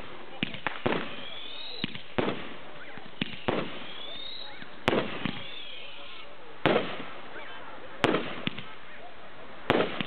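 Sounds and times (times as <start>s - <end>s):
fireworks bangs: 0.0s - 8.9s, 9.6s - 10.0s.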